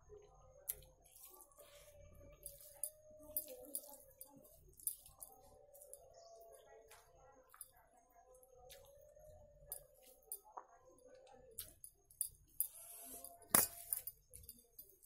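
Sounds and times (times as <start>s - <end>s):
hand squishing food: 0.7s - 11.8s.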